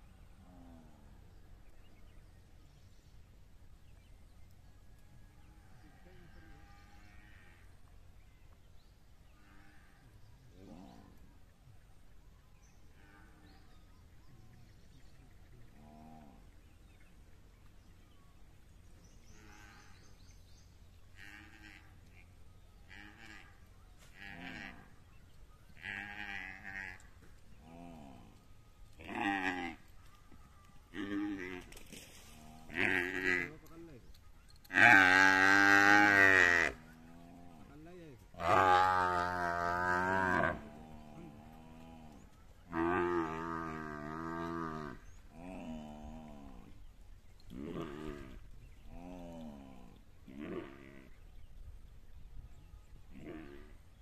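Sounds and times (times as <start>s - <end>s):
soft low cattle lowing: 0.0s - 54.0s
cattle mooing: 38.4s - 46.6s.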